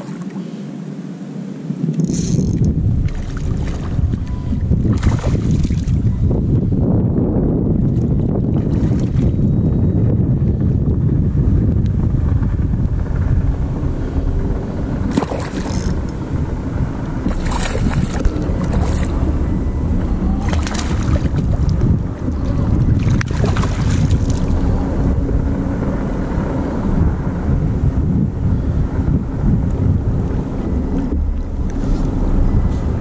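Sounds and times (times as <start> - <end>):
water lapping at hull: 0.0 - 1.0, 1.9 - 6.8, 7.7 - 9.5, 15.0 - 25.1
wind buffeting microphone: 1.6 - 33.0.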